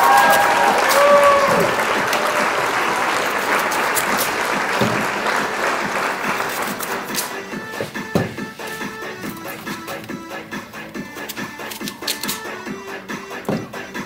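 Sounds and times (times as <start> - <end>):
audience applause: 0.0 - 7.0.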